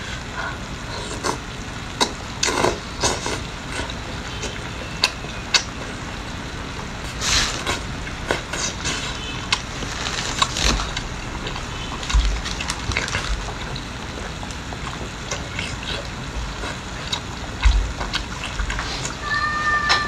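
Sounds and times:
long wet noise: 0.0 - 20.0
wet chewing and lip-smacking: 7.0 - 19.2.

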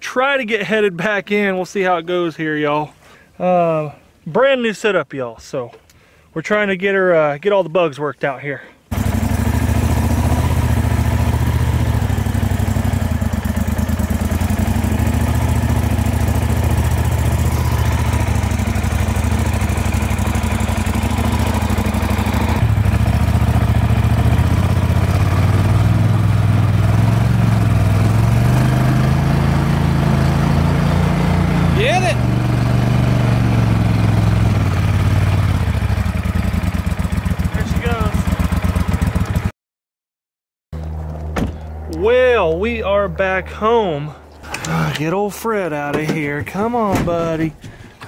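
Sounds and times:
boat motor running: 8.9 - 39.5.

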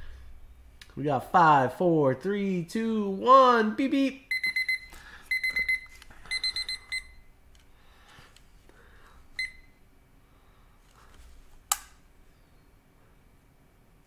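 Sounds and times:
high electronic timer beeps: 4.3 - 7.3, 9.4 - 9.7
sharp click: 11.7 - 12.0.

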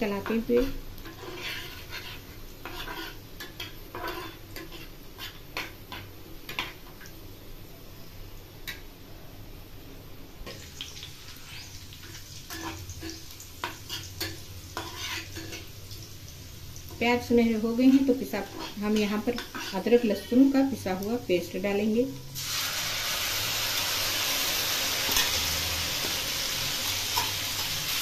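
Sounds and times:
onions sizzling in oil: 0.0 - 28.0
metal spoon scraping a frying pan: 0.2 - 6.8, 11.3 - 15.7, 17.7 - 20.6, 25.0 - 28.0.

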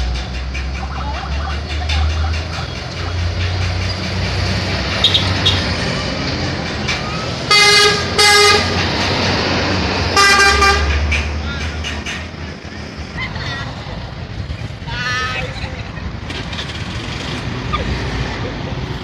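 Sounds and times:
rumble of engines and traffic: 0.0 - 19.0
bus horn blasts: 7.5 - 8.8, 10.1 - 11.0.

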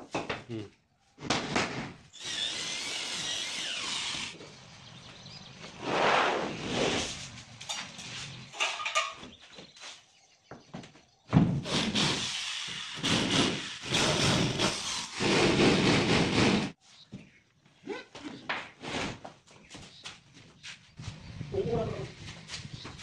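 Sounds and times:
electric drill boring into plywood: 2.1 - 4.4, 11.6 - 16.7.

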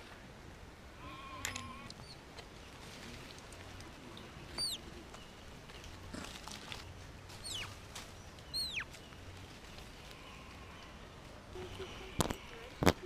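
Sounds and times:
monkey high chirps: 4.6 - 4.8, 7.4 - 7.8, 8.5 - 8.9.

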